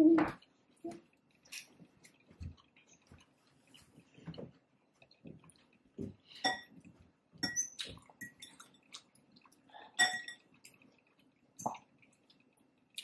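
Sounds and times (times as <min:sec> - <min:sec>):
utensil clinking against a bowl: 0:07.4 - 0:08.6, 0:10.0 - 0:10.4.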